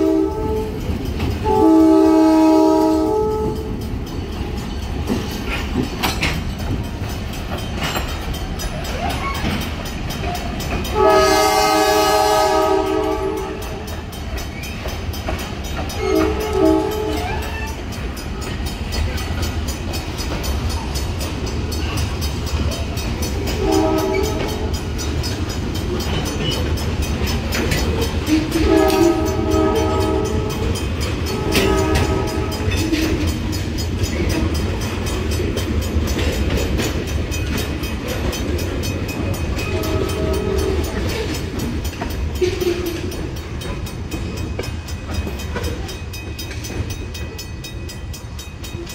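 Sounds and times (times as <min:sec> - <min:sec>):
locomotive horn blasts: 0:00.0 - 0:03.8, 0:10.9 - 0:13.8, 0:16.0 - 0:17.5, 0:23.6 - 0:24.8, 0:28.3 - 0:33.2, 0:39.7 - 0:41.0, 0:42.4 - 0:43.1
train rumble and wheel clatter: 0:00.0 - 0:48.9.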